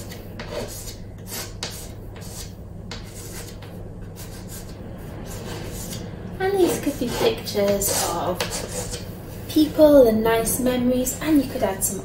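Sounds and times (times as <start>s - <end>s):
chalk scratching on chalkboard: 0.0s - 9.1s.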